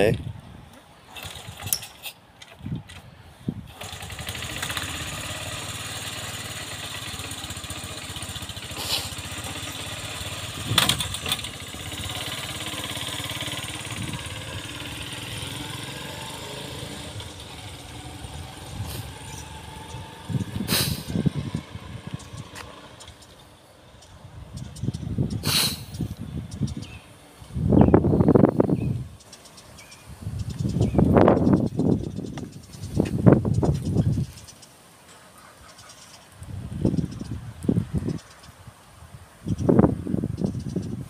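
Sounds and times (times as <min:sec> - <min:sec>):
motorcycle engine starting and idling: 0:01.0 - 0:27.0.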